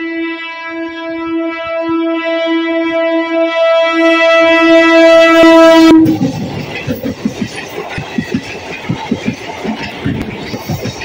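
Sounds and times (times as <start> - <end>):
train horn: 0.0 - 6.4
train rumble and wheel knocks: 5.6 - 11.0.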